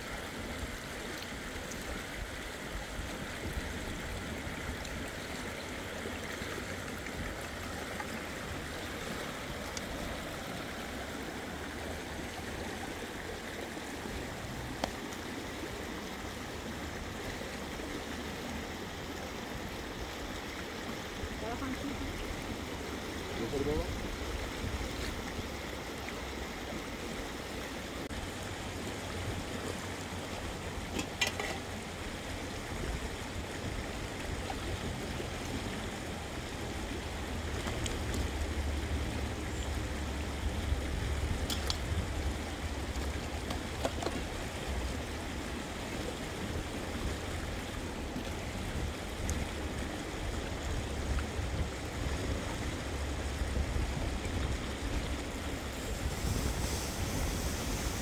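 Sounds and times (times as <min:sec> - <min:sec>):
running water rushing: 0:00.0 - 0:58.0
wind rumbling on microphone: 0:01.8 - 0:05.4, 0:31.7 - 0:58.0.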